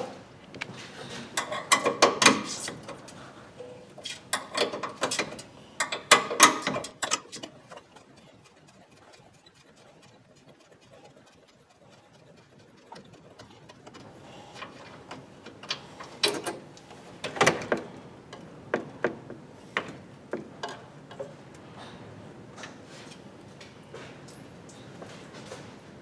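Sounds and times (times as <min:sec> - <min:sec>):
hand ratchet clicking: 0:04.0 - 0:16.6.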